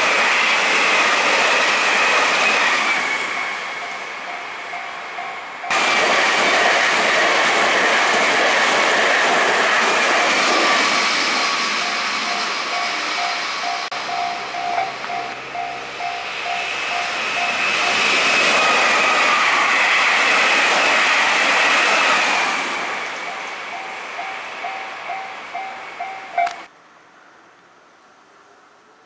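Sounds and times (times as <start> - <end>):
high whine of train: 0.0 - 29.0
train wheel and rail noise: 0.0 - 29.0
level crossing bell ringing: 11.8 - 18.0, 23.3 - 26.7.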